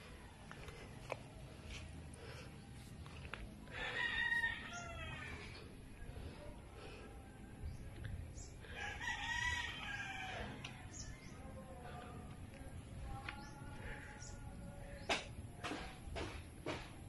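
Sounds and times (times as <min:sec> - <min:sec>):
rooster crowing: 0:03.7 - 0:05.6, 0:08.7 - 0:11.1
faint rooster calls: 0:03.7 - 0:05.7, 0:08.7 - 0:11.2.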